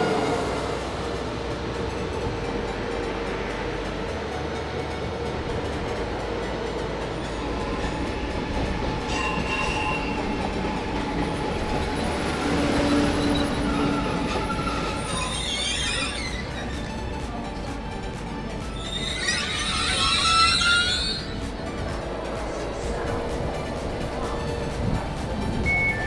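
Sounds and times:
train rumbling: 0.0s - 26.0s
wheel squeal on rails: 7.2s - 17.2s, 18.6s - 21.6s.

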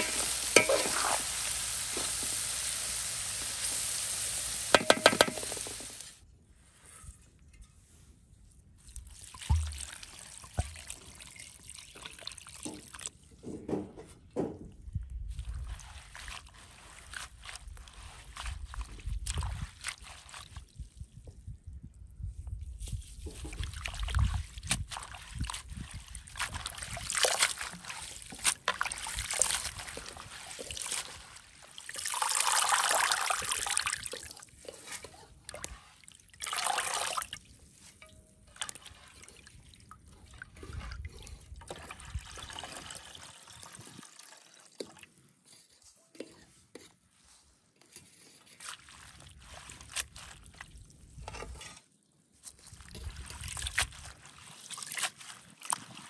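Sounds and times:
hands swishing greens in water: 0.0s - 3.9s, 15.3s - 20.8s, 22.8s - 32.1s, 48.4s - 50.7s, 52.5s - 56.0s
leaves rustling: 0.0s - 6.2s.

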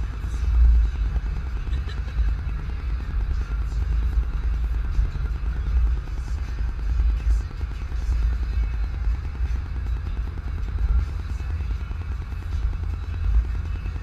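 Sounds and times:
car engine and tyre rumble: 0.0s - 14.0s.

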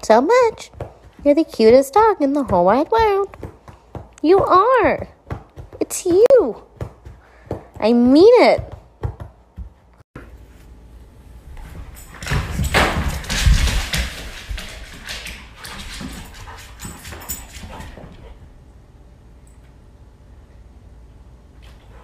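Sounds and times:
dog paws on hardwood floor: 0.0s - 9.8s, 11.4s - 18.4s.

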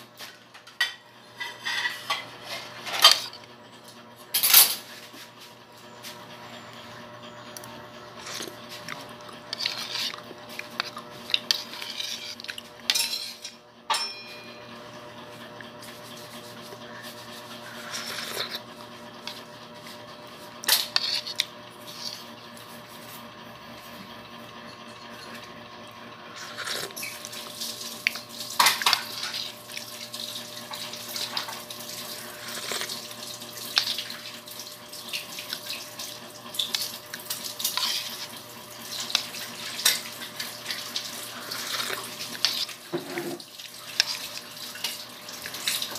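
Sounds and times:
slurping and eating sounds: 8.2s - 12.8s, 16.0s - 19.5s, 20.6s - 22.3s, 26.3s - 34.5s, 35.1s - 45.9s
metal spoon scraping in bowl: 9.5s - 13.5s, 20.7s - 22.3s, 37.6s - 38.3s, 41.5s - 43.4s.

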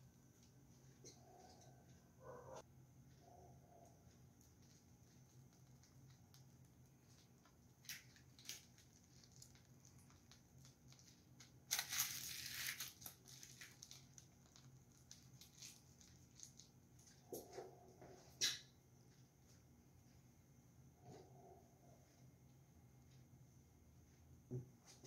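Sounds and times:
plastic bag crinkling: 7.0s - 17.1s.

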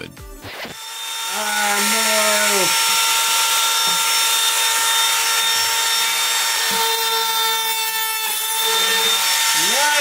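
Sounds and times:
trim router whining: 0.6s - 10.0s.

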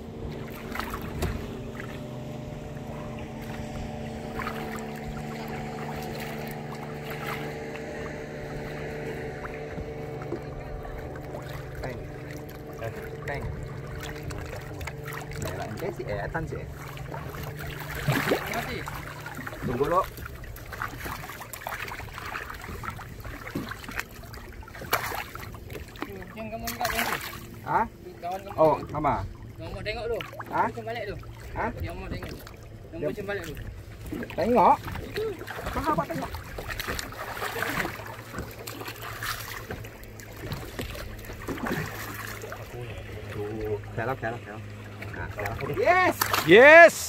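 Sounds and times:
boat engine idling: 0.0s - 47.0s
low steady rumble: 0.0s - 47.0s
water splashing at hull: 0.0s - 47.0s
sharp water slap: 0.5s - 2.0s, 3.4s - 7.8s, 24.7s - 25.5s, 26.6s - 27.4s, 34.8s - 42.5s, 45.3s - 46.6s.

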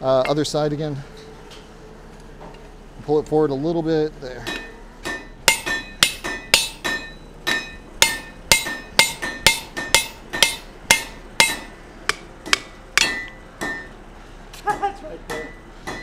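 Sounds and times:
hammer striking punch on anvil: 4.4s - 14.0s, 14.7s - 16.0s
metallic ring: 4.5s - 11.7s.

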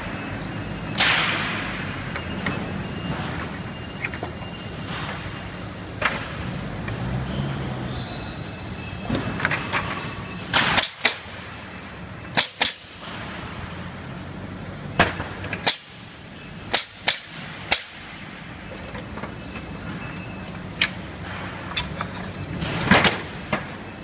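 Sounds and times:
nail gun bangs: 10.5s - 11.2s, 12.4s - 12.8s.

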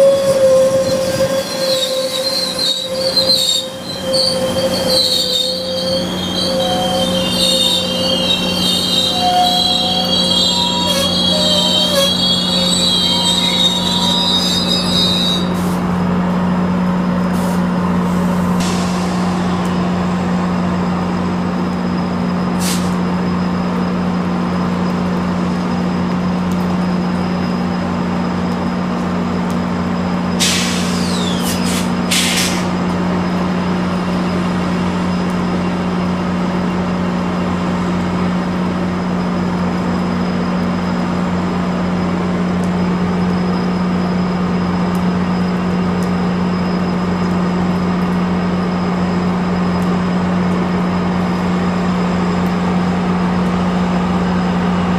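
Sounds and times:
diesel locomotive idling: 0.0s - 54.9s
air hissing bursts: 30.4s - 32.7s.

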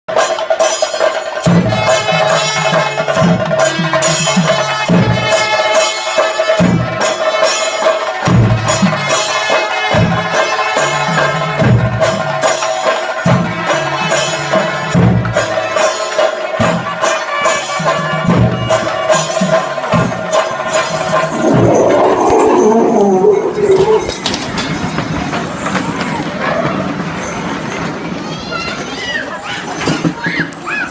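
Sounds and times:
drums beating rhythm: 0.1s - 24.4s
clashing hand cymbals: 0.2s - 24.9s
held high note: 21.0s - 24.2s.

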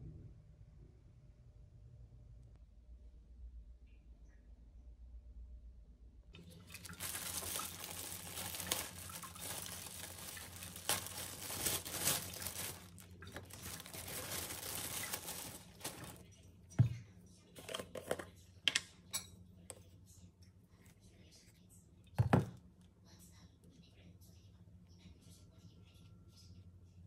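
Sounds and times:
rustling crinkling handling noise: 6.4s - 16.9s.

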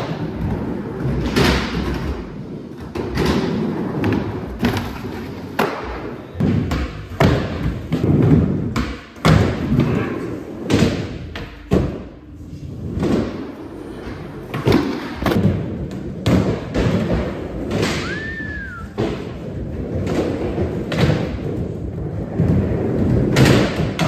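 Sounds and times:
skateboard thuds and clacks: 0.0s - 12.1s, 14.5s - 18.2s, 18.9s - 24.0s
skateboards rolling on concrete: 12.7s - 24.0s.

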